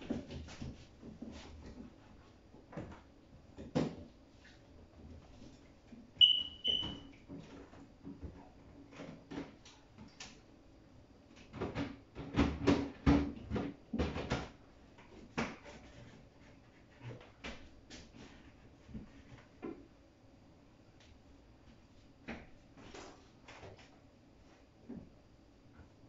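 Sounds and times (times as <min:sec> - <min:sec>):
high electronic beeps: 0:06.2 - 0:07.0
fridge shelves and containers clattering: 0:11.4 - 0:16.1.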